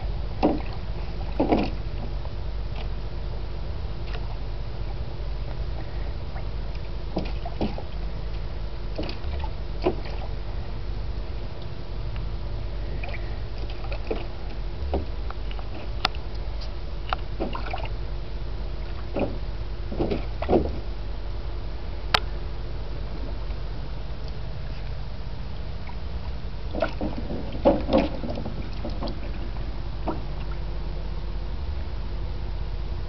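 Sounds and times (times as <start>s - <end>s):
water sloshing in a pool: 0.0s - 3.0s, 5.7s - 10.8s, 12.8s - 21.0s, 24.6s - 30.8s
steady low hum: 0.0s - 33.0s.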